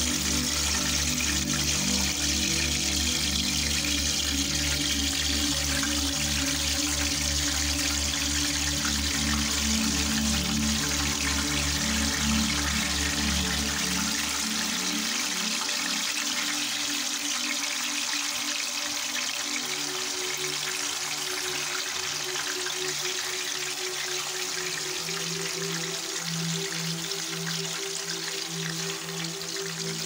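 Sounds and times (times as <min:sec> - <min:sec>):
background music low notes: 0:00.0 - 0:30.0
frying oil sizzling: 0:00.0 - 0:30.0.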